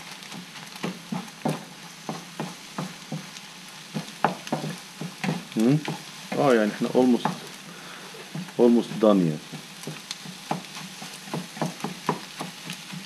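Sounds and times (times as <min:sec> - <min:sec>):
food sizzling in a frying pan: 0:00.0 - 0:13.0
utensil scraping a pan: 0:03.9 - 0:13.0.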